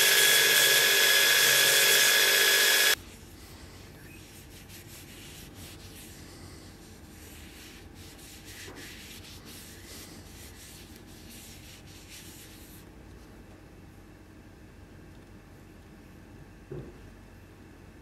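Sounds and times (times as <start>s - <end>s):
cloth rubbing a knife: 0.2s - 12.9s.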